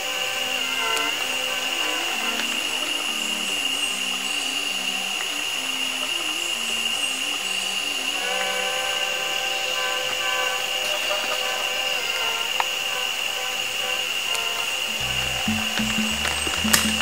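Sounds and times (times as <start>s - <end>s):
cicadas droning: 0.0s - 17.0s
chord of higher tones: 14.8s - 17.0s
low notes stepping up and down: 14.9s - 17.0s.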